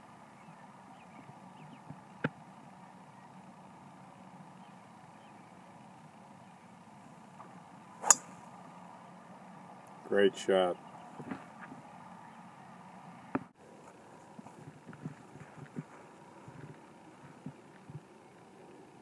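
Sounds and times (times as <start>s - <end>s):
faint background hum: 0.0s - 19.0s
golf club striking ball: 8.0s - 8.4s.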